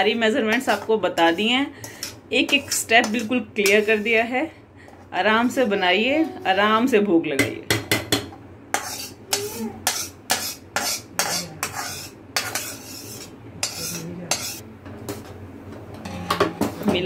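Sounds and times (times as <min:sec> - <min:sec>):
steel ladle scraping metal pan: 0:00.7 - 0:04.2, 0:08.7 - 0:14.6.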